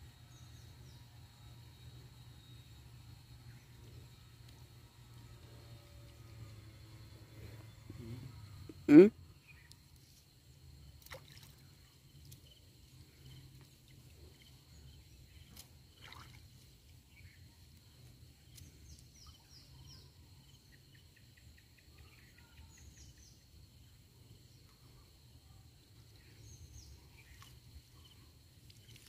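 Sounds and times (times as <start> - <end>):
water sloshing: 11.0 - 12.3, 15.9 - 16.7.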